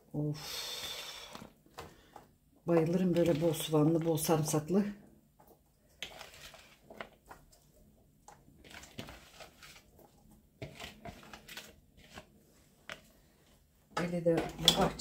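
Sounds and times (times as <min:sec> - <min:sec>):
onions crunching while mixed: 0:02.7 - 0:04.5, 0:05.9 - 0:13.3.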